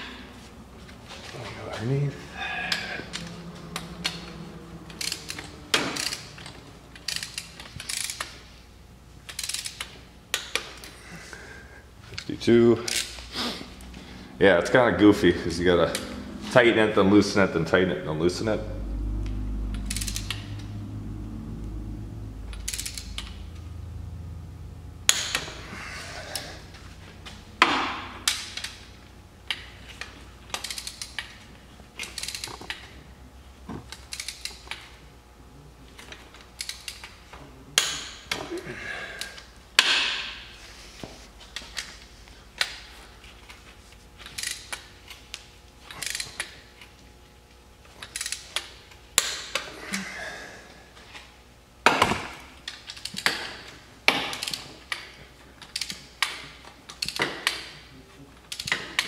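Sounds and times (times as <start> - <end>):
ratchet wrench clicking: 2.7 - 8.5, 9.3 - 10.8, 12.8 - 13.2, 19.2 - 20.7, 22.5 - 23.5, 25.1 - 25.6, 28.2 - 28.9, 30.5 - 31.4, 32.0 - 32.9, 33.9 - 34.9, 36.3 - 37.2, 44.2 - 44.9, 45.9 - 46.6, 48.0 - 49.6, 54.2 - 57.7, 58.5 - 59.0.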